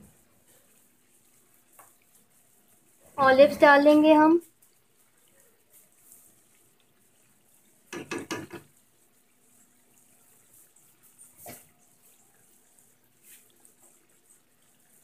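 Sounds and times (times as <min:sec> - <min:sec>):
cutlery and dishes clattering: 0:07.9 - 0:08.7.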